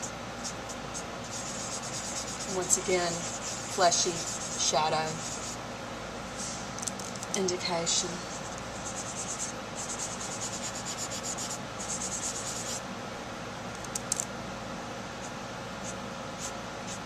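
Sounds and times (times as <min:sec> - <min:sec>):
cotton pad rubbing on paper: 0:00.5 - 0:05.6, 0:08.2 - 0:12.8.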